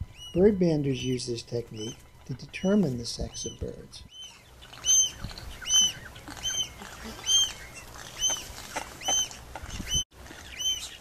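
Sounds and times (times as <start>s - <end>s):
gull calling: 3.2s - 11.0s.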